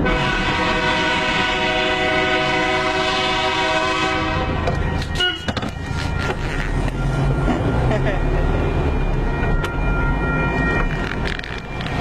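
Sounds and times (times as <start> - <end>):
train horn blast: 0.0 - 5.6.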